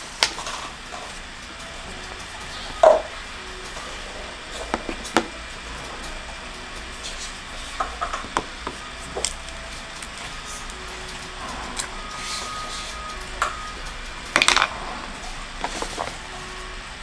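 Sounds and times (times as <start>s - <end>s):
dried pod shells cracking: 8.1s - 10.8s.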